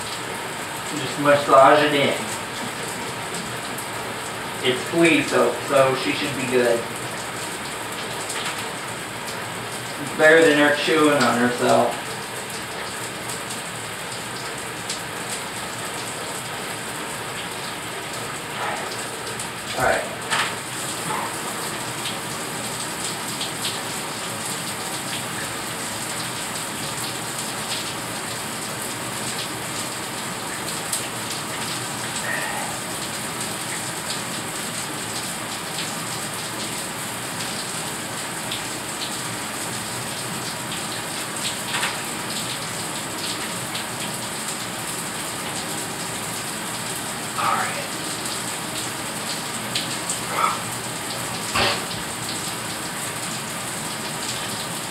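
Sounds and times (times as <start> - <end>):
water running from tap: 0.0 - 54.9.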